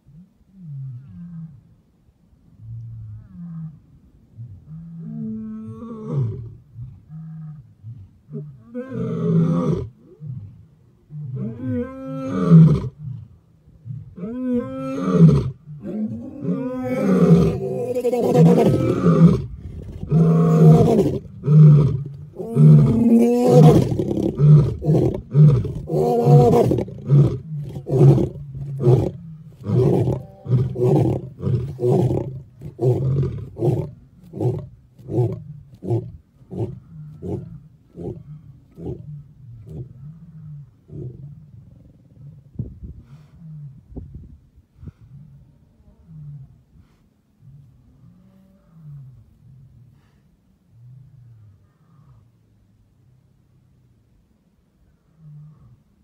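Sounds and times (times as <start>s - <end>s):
lion roaring: 4.6s - 42.4s.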